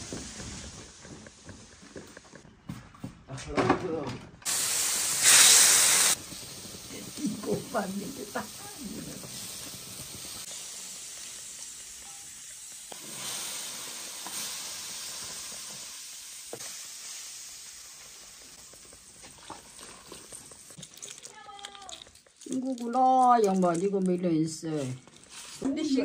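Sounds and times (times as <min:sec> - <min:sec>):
broth sizzling in a wok: 0:04.5 - 0:20.8.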